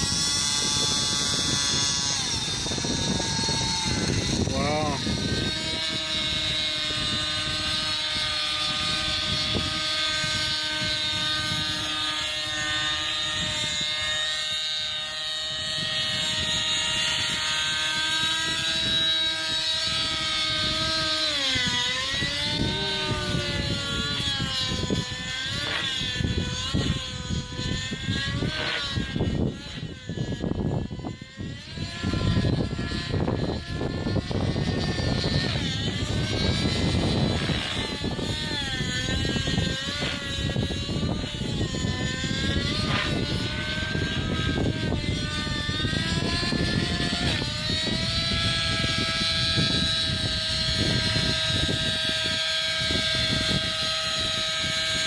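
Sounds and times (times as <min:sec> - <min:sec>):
rc helicopter engine and rotor: 0:00.0 - 0:55.0.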